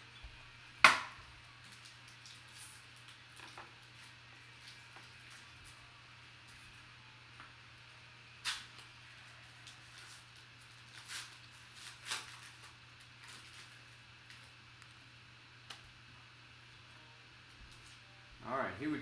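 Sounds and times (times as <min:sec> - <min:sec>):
faint steady hum: 0:00.0 - 0:19.0
foil wrapper crinkling and tearing: 0:01.6 - 0:05.8, 0:08.4 - 0:15.0.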